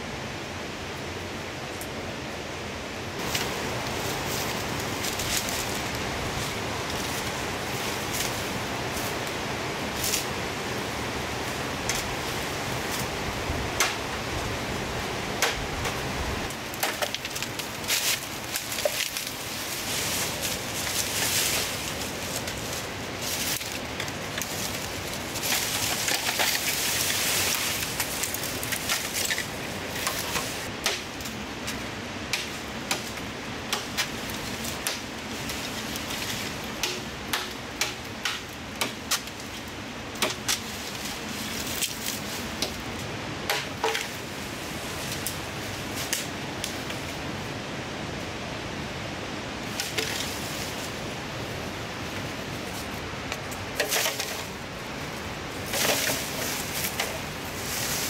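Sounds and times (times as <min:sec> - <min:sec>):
bamboo canes and leaves rustling: 0:03.1 - 0:58.0
knife chopping bamboo: 0:30.8 - 0:31.1, 0:36.8 - 0:39.3.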